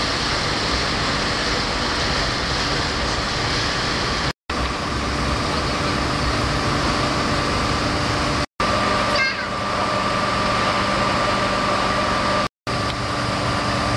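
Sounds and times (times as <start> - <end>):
boat engine hum: 0.0 - 13.9
rushing water noise: 0.0 - 13.9.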